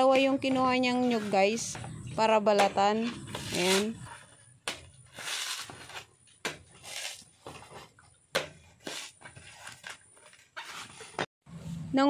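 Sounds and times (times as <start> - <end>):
husk tearing and scraping: 3.0 - 7.7.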